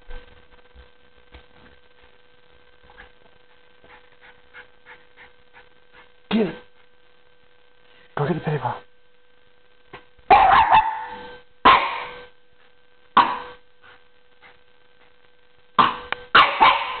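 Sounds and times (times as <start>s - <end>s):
dog barking: 10.3s - 12.1s, 16.4s - 17.0s.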